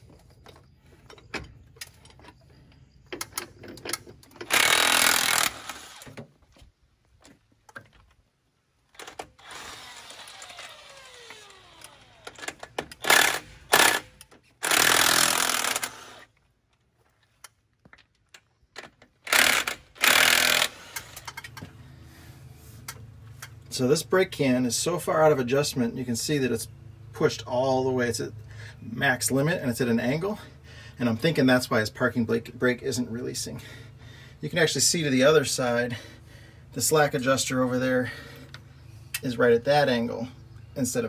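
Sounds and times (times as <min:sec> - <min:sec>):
impact wrench hammering: 0:19.3 - 0:20.8.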